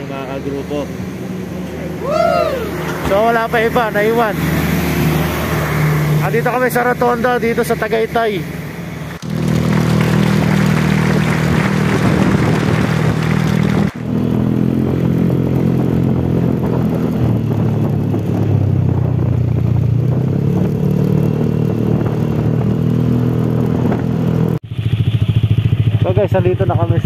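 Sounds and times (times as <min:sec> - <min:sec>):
scooter engine running: 0:02.6 - 0:27.0
wind rush: 0:09.1 - 0:24.5.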